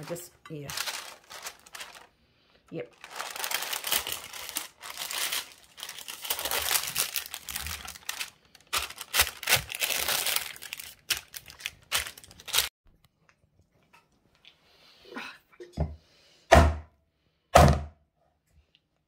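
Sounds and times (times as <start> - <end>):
paper crinkling and crumpling: 0.0 - 12.7.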